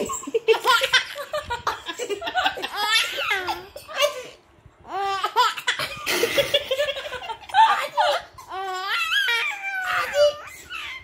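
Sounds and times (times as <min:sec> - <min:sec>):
baby laughing: 0:00.0 - 0:04.3, 0:04.9 - 0:11.0
baby squealing: 0:08.4 - 0:11.0.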